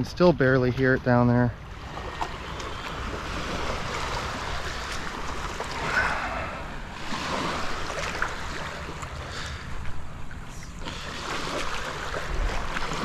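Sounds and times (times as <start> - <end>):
surf washing over sand: 1.8 - 9.7.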